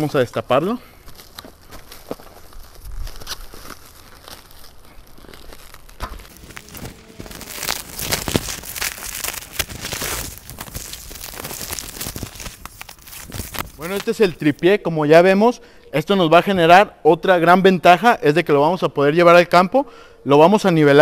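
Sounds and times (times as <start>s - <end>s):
plastic and paper wrapping crinkling: 1.1s - 14.6s.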